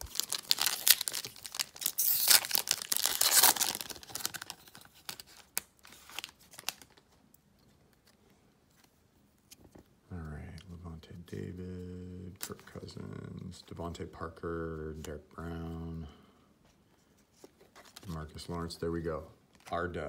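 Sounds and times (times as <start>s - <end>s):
card pack wrapper tearing: 0.0s - 7.0s.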